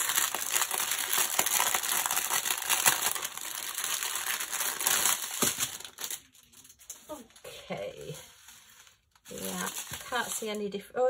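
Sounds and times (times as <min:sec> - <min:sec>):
plastic packaging crinkling: 0:00.0 - 0:10.8.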